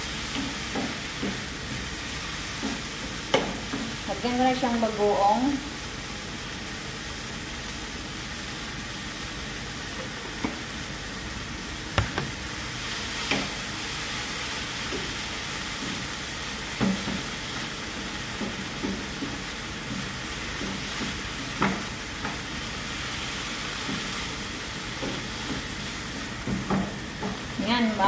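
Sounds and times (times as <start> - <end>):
rice sizzling in a frying pan: 0.0 - 28.0.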